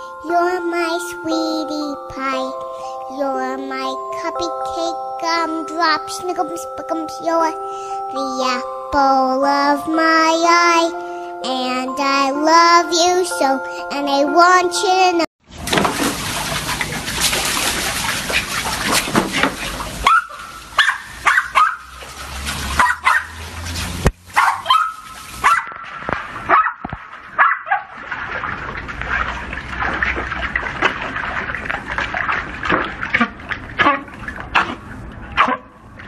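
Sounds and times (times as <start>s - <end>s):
dogs splashing in water: 15.5s - 36.0s
dogs yipping and whining: 20.0s - 21.9s, 22.7s - 23.4s, 24.4s - 25.8s, 27.4s - 27.9s, 33.8s - 35.8s.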